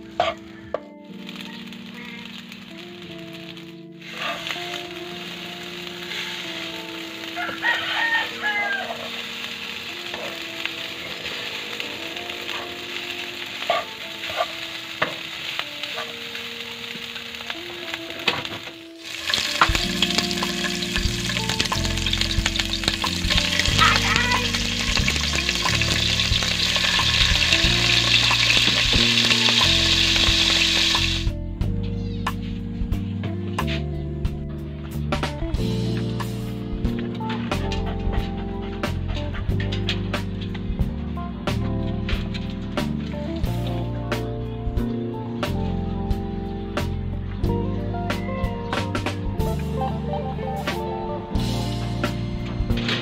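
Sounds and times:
hot oil sizzling: 0:01.1 - 0:31.4
rooster crowing: 0:07.3 - 0:09.4.

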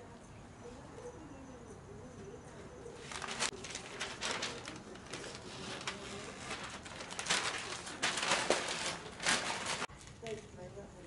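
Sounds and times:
paper and tape rustling: 0:03.0 - 0:10.6.

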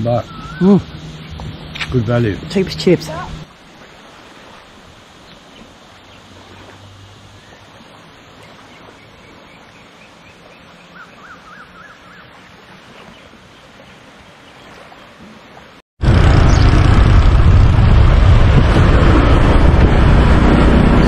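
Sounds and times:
small waves lapping on shore: 0:00.6 - 0:15.8.

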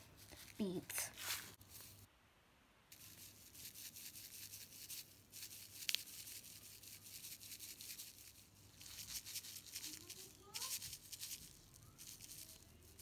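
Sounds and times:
wax beads poured into glass jar: 0:02.9 - 0:13.0.

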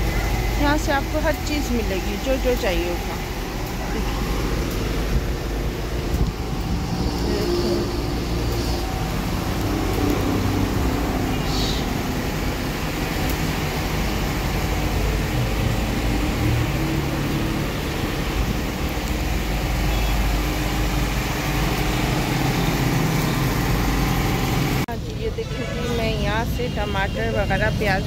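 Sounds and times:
road traffic rumble: 0:00.0 - 0:28.0.

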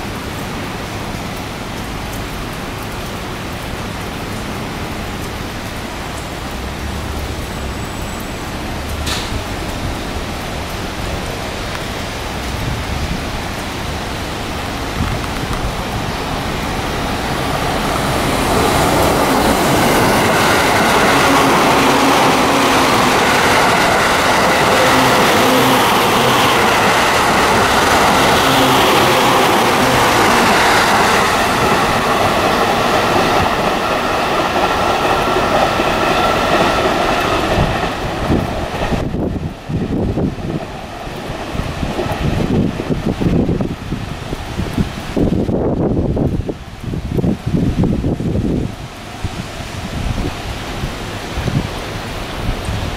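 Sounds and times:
electric train passing: 0:00.0 - 0:52.9.

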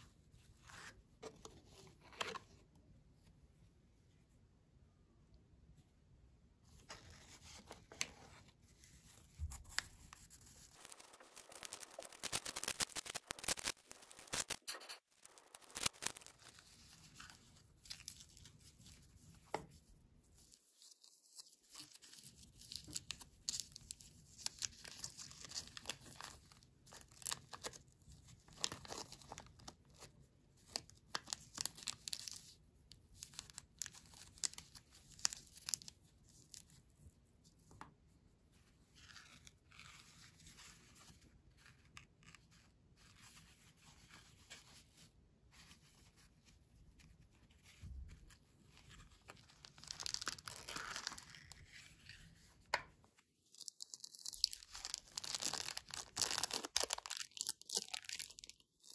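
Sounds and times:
plastic wrapper tearing and crinkling: 0:09.6 - 0:18.5, 0:21.8 - 0:27.8, 0:28.4 - 0:30.1, 0:30.7 - 0:36.7, 0:48.9 - 0:52.2, 0:53.4 - 0:58.9.

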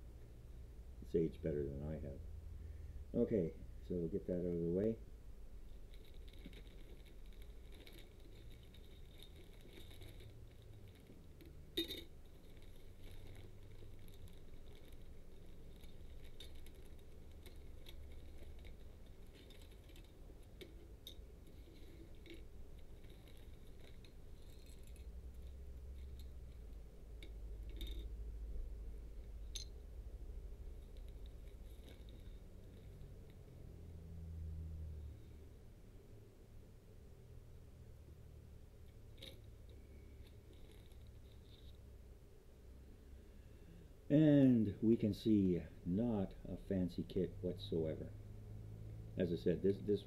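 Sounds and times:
plastic bag rustling: 0:05.7 - 0:26.7.

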